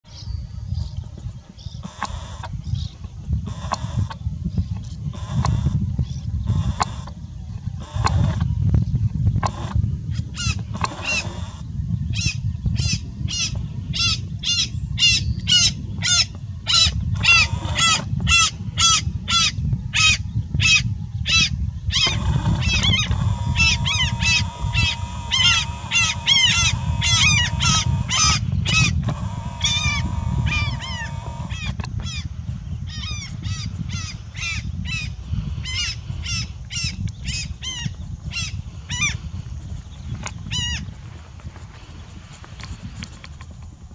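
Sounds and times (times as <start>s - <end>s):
swans honking: 22.0s - 31.6s.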